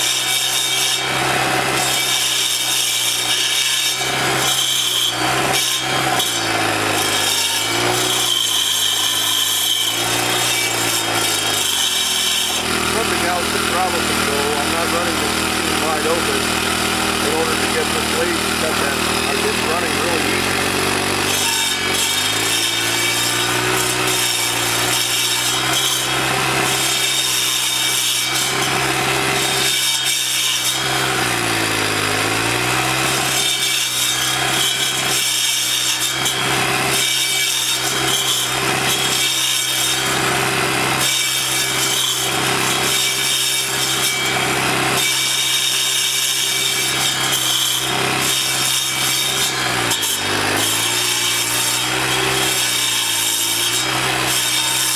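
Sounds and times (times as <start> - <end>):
blade grinding stump: 0.0 - 54.9
small engine running: 9.4 - 54.9.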